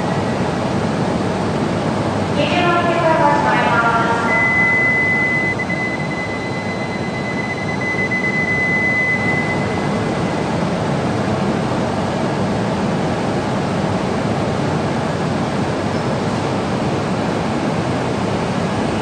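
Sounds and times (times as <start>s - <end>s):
steady high tone: 2.4s - 10.6s.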